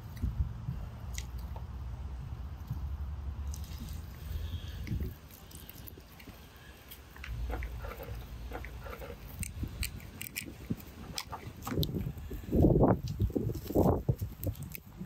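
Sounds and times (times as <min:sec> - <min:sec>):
wet squelching: 0:03.4 - 0:12.4.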